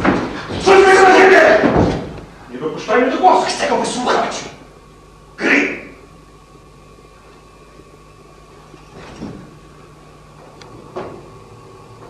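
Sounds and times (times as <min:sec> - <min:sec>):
electrical hum and hiss: 0:00.0 - 0:12.0.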